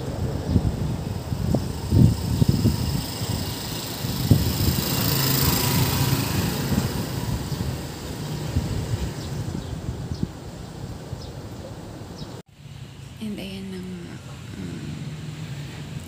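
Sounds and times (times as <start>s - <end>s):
small motorcycle engine passing: 0.0s - 9.7s, 14.3s - 16.0s.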